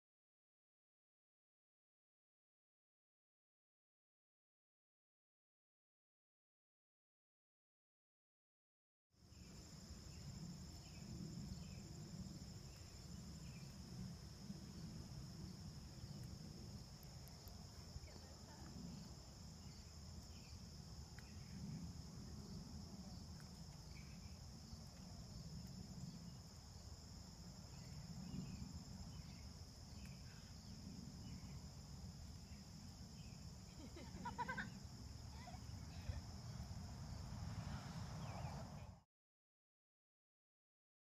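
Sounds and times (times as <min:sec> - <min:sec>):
crickets chirping: 0:09.2 - 0:39.0.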